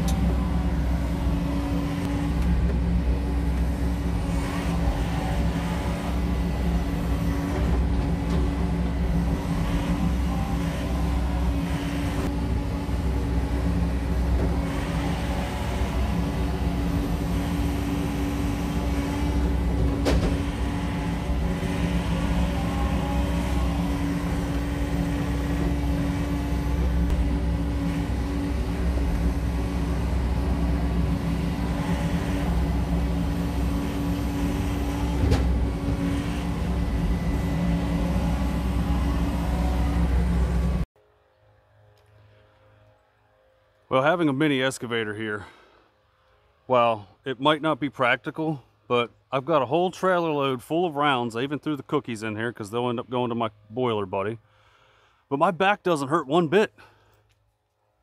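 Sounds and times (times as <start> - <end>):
excavator diesel engine running: 0.0 - 40.9.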